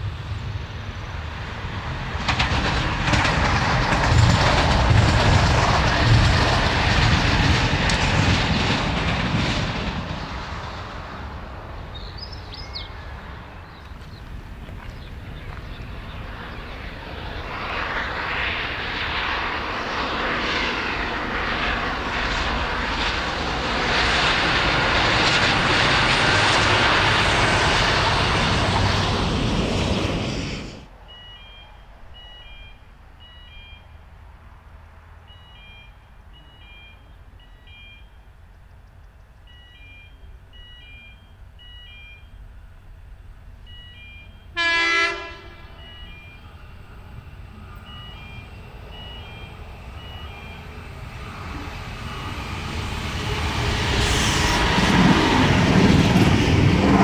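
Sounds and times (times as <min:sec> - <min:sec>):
diesel train passing: 0:00.0 - 0:57.0
birds chirping: 0:11.8 - 0:18.4.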